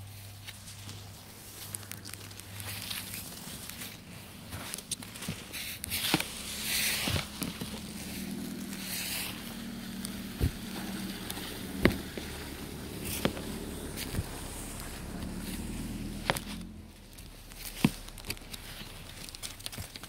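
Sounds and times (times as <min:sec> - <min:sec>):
brush sweeping snow: 0:00.1 - 0:19.4
low hum: 0:06.0 - 0:20.0.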